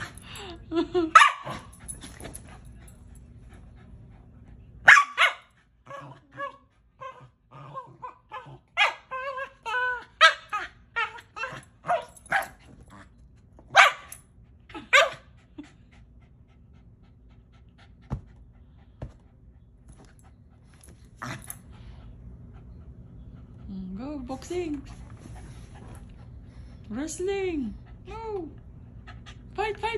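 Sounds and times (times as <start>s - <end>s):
small dog barking: 1.2s - 1.6s, 4.8s - 6.6s, 8.3s - 9.1s, 11.4s - 12.6s, 13.7s - 14.1s.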